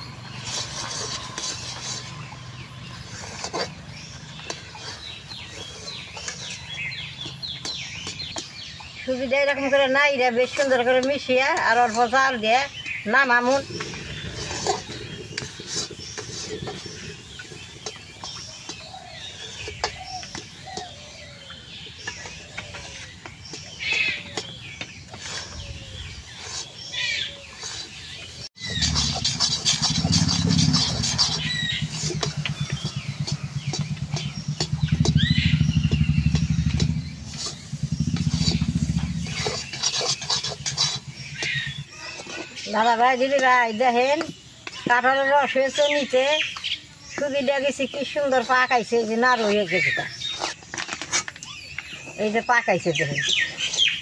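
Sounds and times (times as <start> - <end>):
birds chirping: 0.0 - 54.0
metal spatula scraping a pan: 0.3 - 8.6, 10.4 - 20.4, 25.1 - 35.2, 36.3 - 43.5
metal spatula scraping metal pan: 26.2 - 35.2, 36.4 - 43.5
low pulsing engine hum: 28.6 - 42.0.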